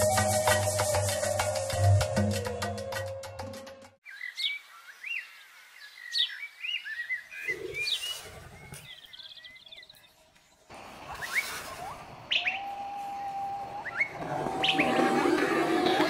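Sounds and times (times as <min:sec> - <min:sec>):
music: 0:00.0 - 0:04.0
wild birds chirping: 0:04.0 - 0:16.0.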